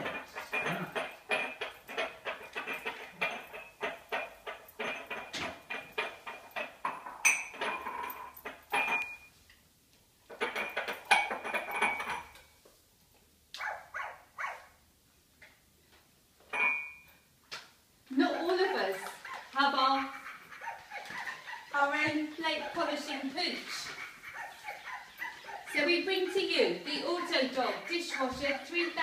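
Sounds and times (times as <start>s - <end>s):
plates and cutlery clinking: 0.0s - 9.4s, 10.3s - 12.4s, 16.4s - 17.2s, 18.2s - 29.0s.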